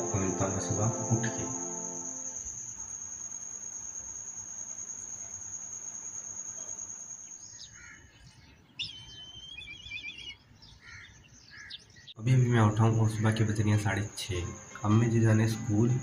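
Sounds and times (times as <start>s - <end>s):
crickets chirring: 0.0s - 10.6s, 12.2s - 16.0s
birds chirping: 6.7s - 14.2s.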